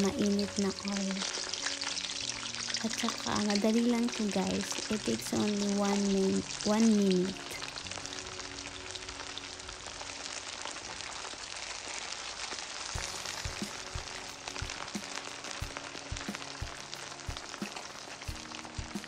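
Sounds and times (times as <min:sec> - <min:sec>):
chicken deep-frying in oil: 0:00.0 - 0:19.0
background music with steady beat: 0:12.9 - 0:19.0.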